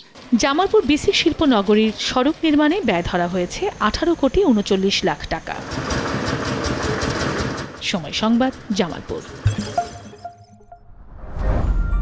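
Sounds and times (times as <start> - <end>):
sustained musical chord: 9.4 - 10.8
whoosh: 10.9 - 12.0.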